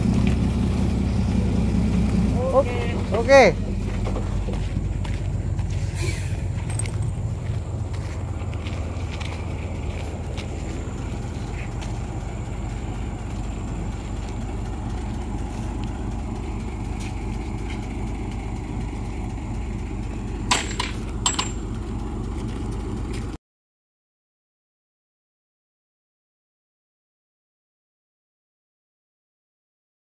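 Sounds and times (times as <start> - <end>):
diesel truck engine idling: 0.0 - 23.4.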